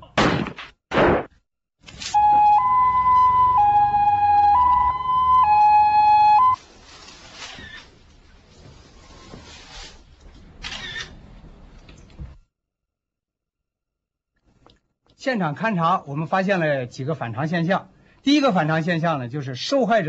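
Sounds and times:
loud thump: 0.2 - 1.4
police siren two-tone wail: 2.2 - 6.6.

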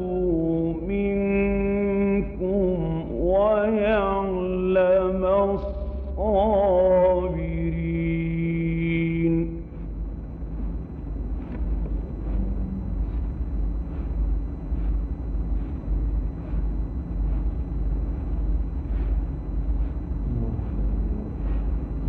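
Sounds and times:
recording rumble and hiss: 0.0 - 22.0.

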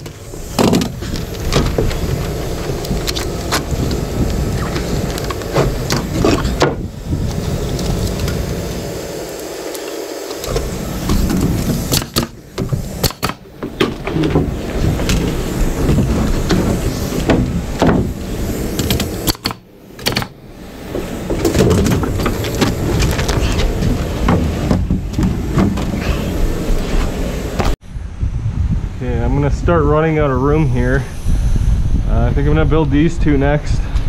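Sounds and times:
low rumble: 10.4 - 34.0
wood knocks and clatter: 10.5 - 18.2, 20.9 - 26.1.

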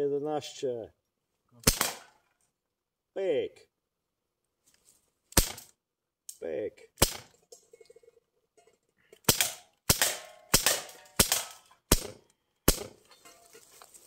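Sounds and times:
air pistol shots popping: 1.6 - 2.2, 5.3 - 5.7, 7.0 - 7.4, 9.2 - 13.0.

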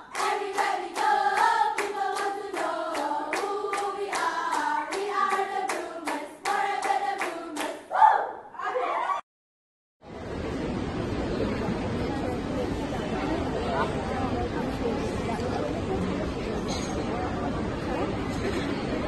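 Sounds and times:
group of voices singing: 0.0 - 7.9
hand claps: 0.1 - 7.8
loud shout: 7.9 - 9.2.

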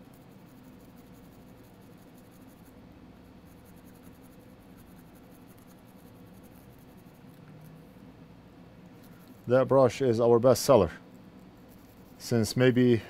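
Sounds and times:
brush scrubbing circuit board: 0.0 - 8.0, 11.6 - 13.0
low steady hum: 0.0 - 13.0.

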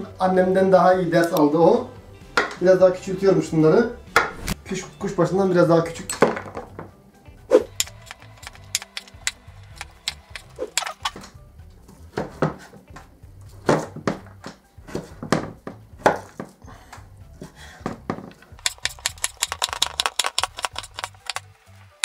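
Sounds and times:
background music: 0.0 - 22.0
knife chopping on wooden board: 4.2 - 4.6, 12.1 - 16.5.

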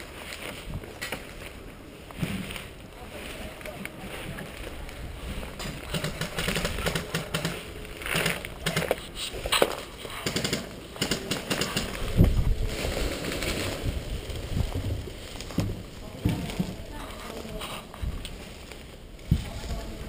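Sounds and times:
footsteps: 0.0 - 20.0
rustle of weeds and leaves: 0.0 - 20.0
sharp irregular clicks: 5.6 - 12.0.

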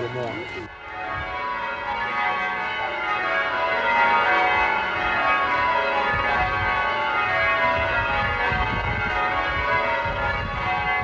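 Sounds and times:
church bells ringing: 0.0 - 11.0.

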